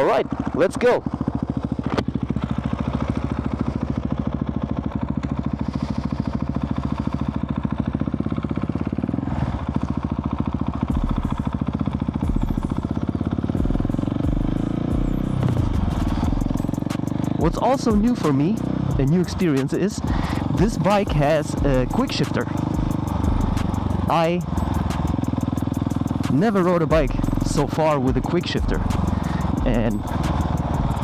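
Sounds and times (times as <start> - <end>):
motorcycle engine pulling away: 0.0 - 31.0.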